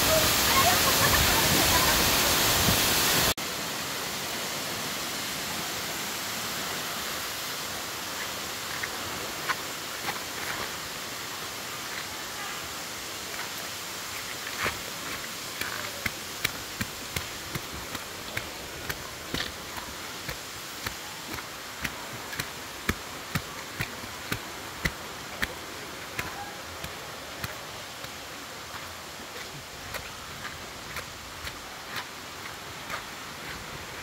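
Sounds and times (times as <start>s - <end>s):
rush of falling water: 0.0s - 34.0s
footsteps walking: 14.4s - 34.0s.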